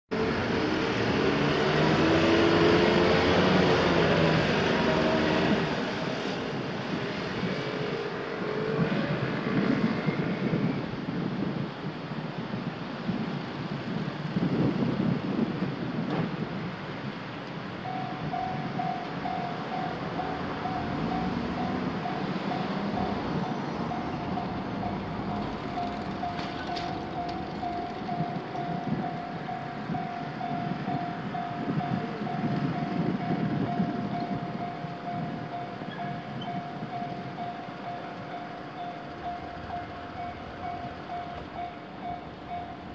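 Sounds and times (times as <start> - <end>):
cars passing: 0.1 - 12.2, 12.8 - 42.9
wind on microphone: 0.1 - 42.9
railroad crossing warning bell: 0.2 - 6.8, 17.7 - 42.9.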